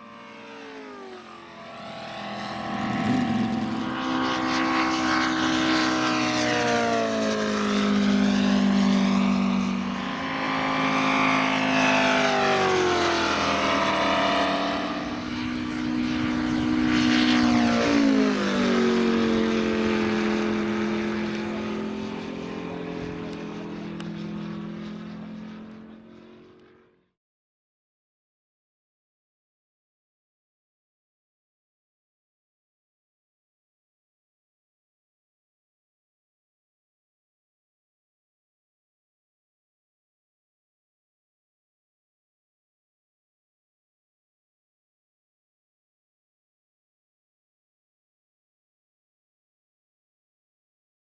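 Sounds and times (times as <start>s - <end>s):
model plane engines passing: 0.0s - 27.2s.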